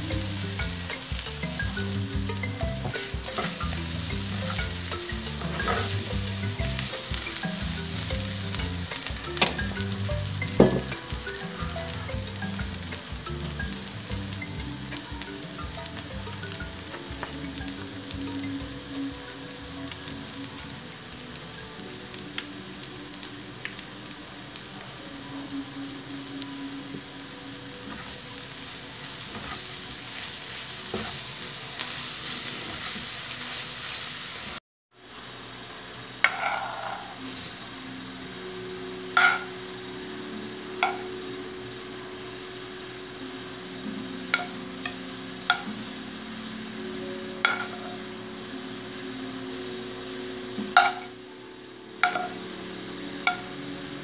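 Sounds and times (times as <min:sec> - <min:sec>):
food sizzling in a frying pan: 0:00.0 - 0:54.0.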